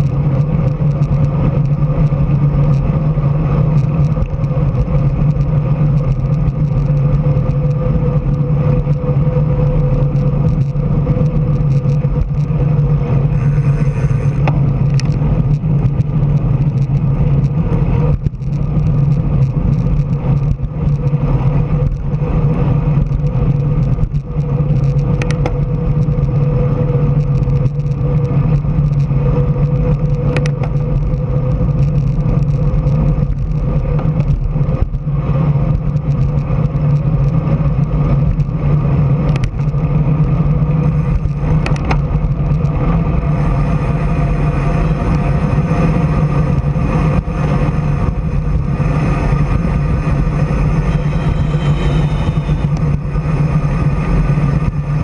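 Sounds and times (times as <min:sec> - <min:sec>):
low hum: 0:00.0 - 0:55.0
road and wind noise: 0:00.0 - 0:55.0.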